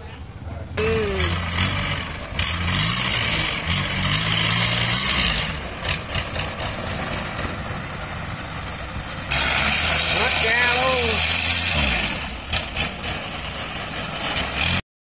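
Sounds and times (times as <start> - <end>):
boat engine running: 0.0 - 14.8
propeller churning water: 0.2 - 14.8.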